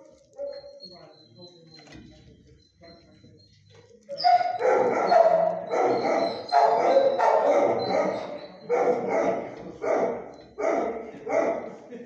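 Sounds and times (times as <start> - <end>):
dog barking: 0.0 - 0.8, 4.2 - 11.9.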